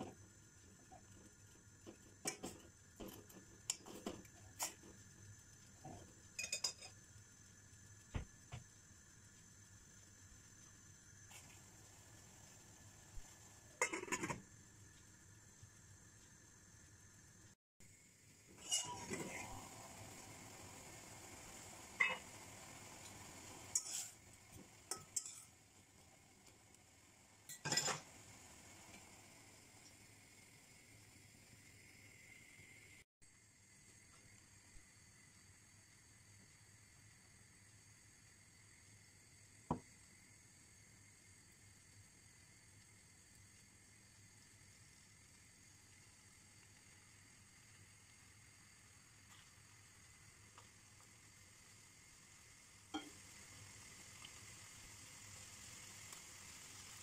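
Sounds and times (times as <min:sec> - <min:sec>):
simmering hiss: 0:00.0 - 0:57.0
metal spoon clinking on saucepan: 0:06.4 - 0:06.9, 0:24.9 - 0:25.5
metal spoon scraping saucepan: 0:18.6 - 0:19.5.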